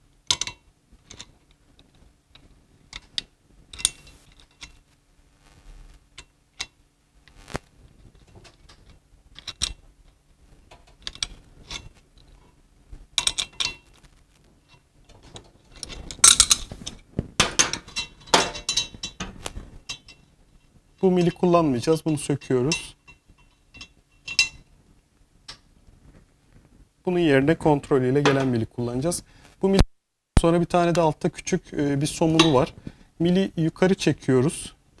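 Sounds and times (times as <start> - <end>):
metallic clatter: 14.6 - 24.7.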